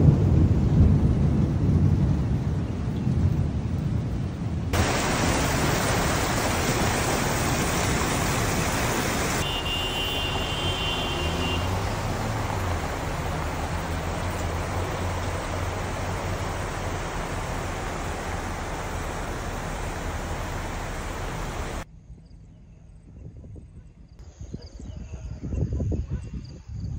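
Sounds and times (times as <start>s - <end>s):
low rumble of thunder: 0.0s - 9.2s
rain hissing: 0.0s - 21.8s
rushing floodwater: 4.7s - 21.9s
vehicle engine hum: 4.8s - 21.8s.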